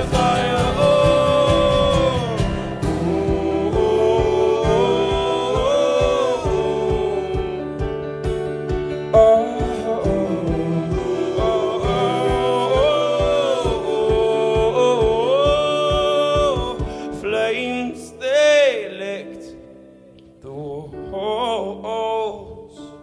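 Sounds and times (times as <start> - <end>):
voices singing long notes: 0.0 - 8.4, 9.0 - 19.2
steady drum beat: 0.0 - 17.4
guitar: 0.0 - 20.4
keyboard: 0.0 - 23.0.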